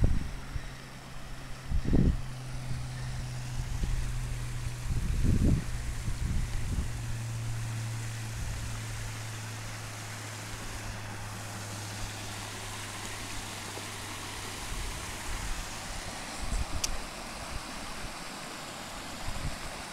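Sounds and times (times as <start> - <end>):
wind buffeting microphone: 0.0 - 0.7, 1.6 - 8.8
low steady hum: 0.0 - 19.9
stream rushing over rocks: 1.9 - 19.9.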